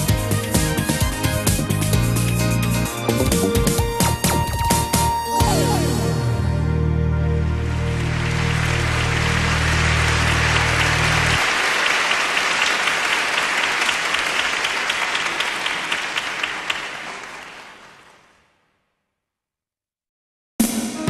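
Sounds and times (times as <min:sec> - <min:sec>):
low music: 0:00.0 - 0:11.4
audience applauding: 0:07.4 - 0:18.6.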